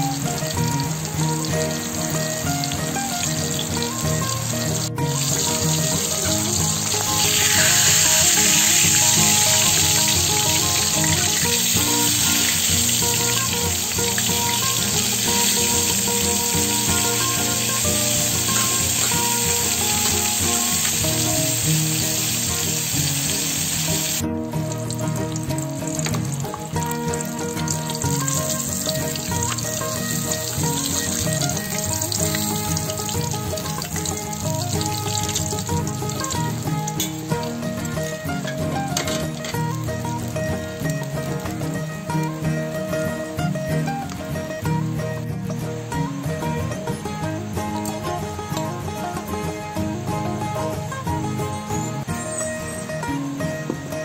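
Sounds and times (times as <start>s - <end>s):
fish sizzling in hot oil: 0.0s - 41.1s
background music: 0.0s - 54.0s.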